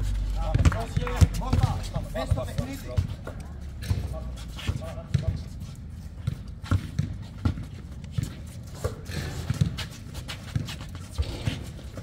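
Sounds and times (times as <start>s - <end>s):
footsteps on hard court: 0.0s - 12.0s
basketball bouncing: 0.1s - 3.2s, 6.2s - 9.8s.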